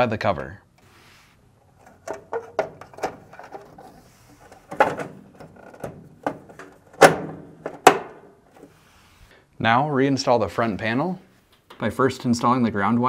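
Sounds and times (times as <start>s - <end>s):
cover clicking and knocking on frame: 2.1s - 3.6s, 4.7s - 8.3s.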